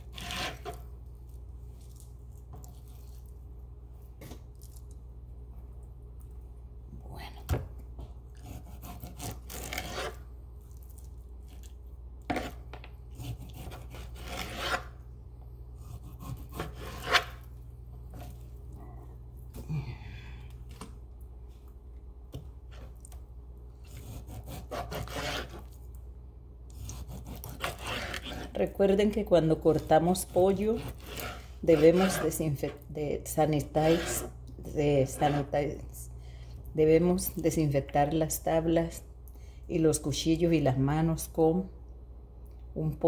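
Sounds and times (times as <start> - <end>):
knife slicing meat on board: 15.8 - 17.4, 23.9 - 25.7, 26.7 - 28.6
low hum: 17.3 - 24.1.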